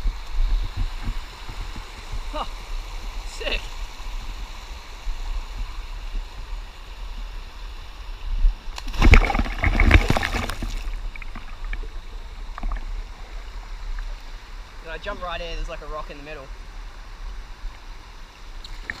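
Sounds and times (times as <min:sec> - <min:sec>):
creek water running: 0:00.0 - 0:19.0
loud water splashing: 0:08.8 - 0:11.8.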